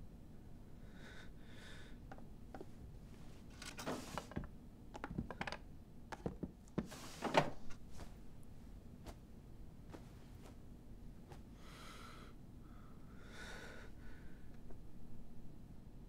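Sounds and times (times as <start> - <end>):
bedding rustling: 3.1 - 4.4, 6.8 - 11.6.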